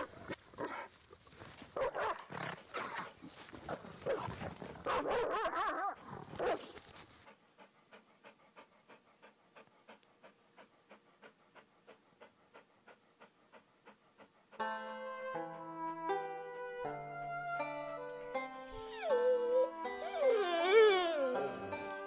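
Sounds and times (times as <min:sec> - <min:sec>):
dog breathing rhythmically: 0:06.0 - 0:15.7
plucked-string music: 0:14.6 - 0:22.0
dog whining: 0:18.6 - 0:21.8.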